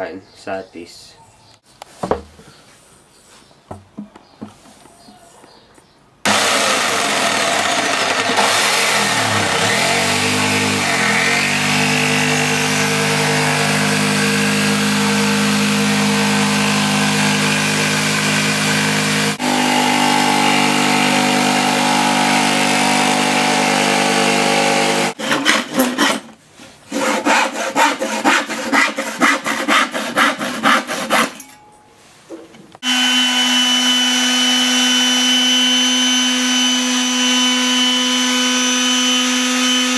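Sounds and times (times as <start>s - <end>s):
electric jigsaw cutting plywood: 6.2s - 26.3s, 32.8s - 39.9s
electric palm sander running: 6.3s - 25.2s, 32.8s - 39.9s.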